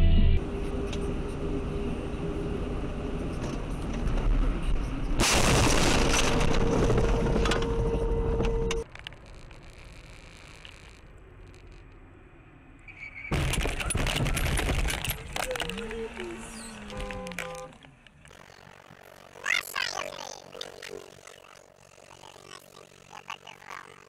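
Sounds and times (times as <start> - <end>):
road noise: 0.4 - 5.2, 6.8 - 24.0
debris hitting car: 13.3 - 15.7
steady tone: 18.3 - 24.0.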